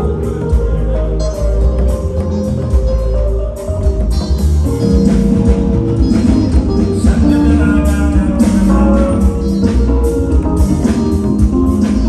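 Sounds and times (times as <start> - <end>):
band music: 0.0 - 12.0
deep bass: 0.0 - 12.0
drums: 0.0 - 12.0.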